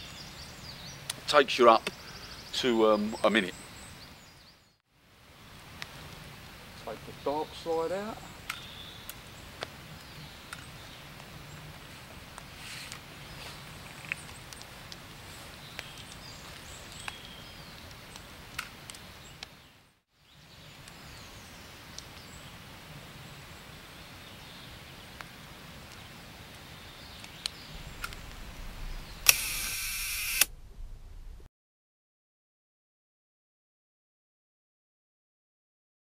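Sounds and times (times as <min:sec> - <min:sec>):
loud burst of noise: 0:27.7 - 0:31.5
small clicks: 0:29.2 - 0:30.5.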